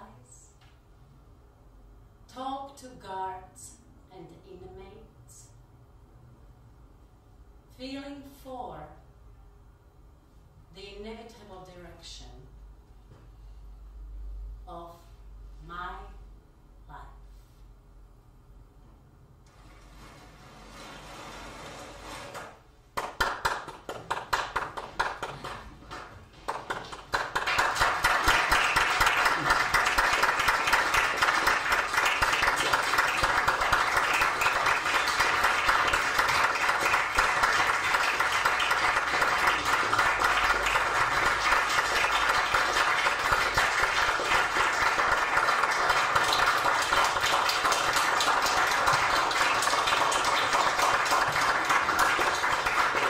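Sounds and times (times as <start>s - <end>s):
audience applause: 23.0s - 53.0s.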